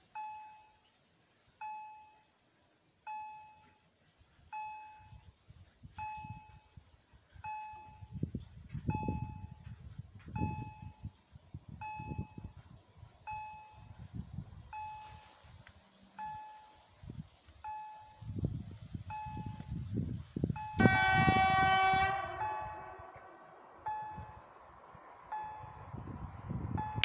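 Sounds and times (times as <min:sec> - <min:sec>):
level-crossing warning bell: 0:04.5 - 0:05.3, 0:06.0 - 0:06.8, 0:07.4 - 0:08.3, 0:08.9 - 0:11.2, 0:13.3 - 0:14.0, 0:14.6 - 0:15.5, 0:16.2 - 0:17.0, 0:17.6 - 0:18.4, 0:19.1 - 0:19.6, 0:20.6 - 0:24.6, 0:25.2 - 0:26.1, 0:26.7 - 0:27.0.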